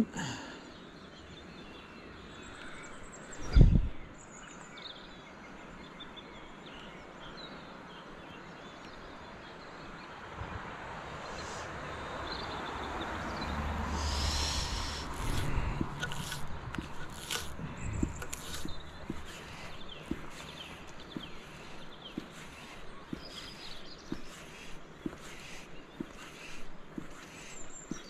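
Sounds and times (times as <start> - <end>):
small birds chirping: 0.0 - 28.0
steady outdoor hiss: 0.0 - 28.0
rustling: 14.0 - 28.0.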